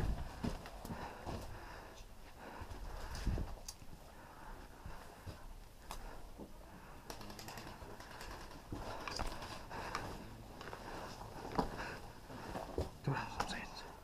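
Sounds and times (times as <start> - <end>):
quiet footsteps: 0.0 - 14.0.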